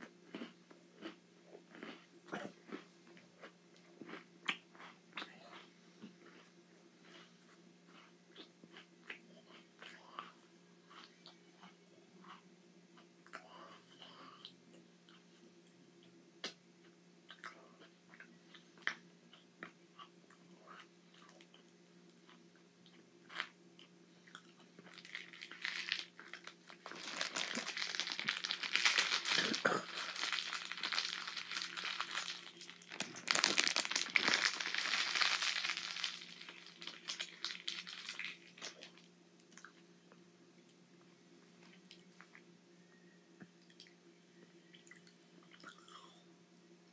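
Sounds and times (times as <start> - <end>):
plastic wrapper crinkling: 24.9 - 39.1.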